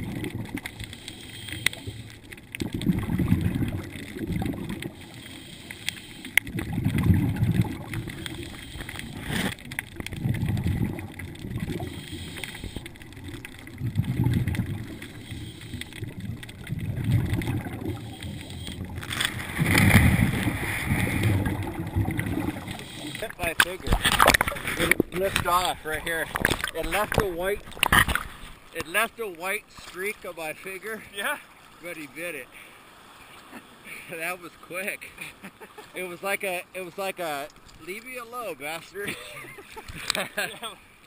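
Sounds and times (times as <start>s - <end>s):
underwater exhaled bubbles: 0.0s - 28.8s.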